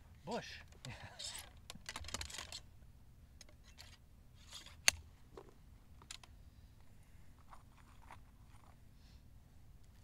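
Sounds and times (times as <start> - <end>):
rifle ramrod and lock clicks: 3.4 - 5.0.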